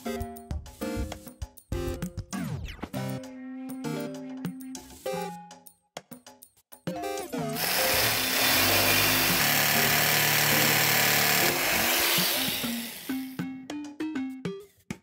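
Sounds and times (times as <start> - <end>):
jigsaw cutting wood: 7.6 - 13.4.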